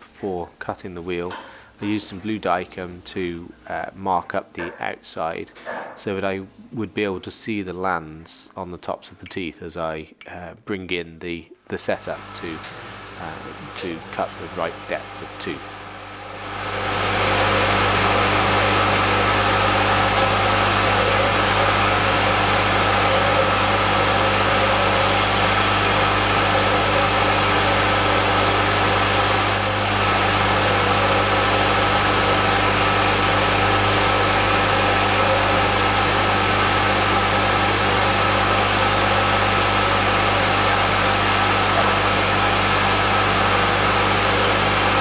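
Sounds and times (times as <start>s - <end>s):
lathe cutter spindle humming: 12.0s - 45.0s.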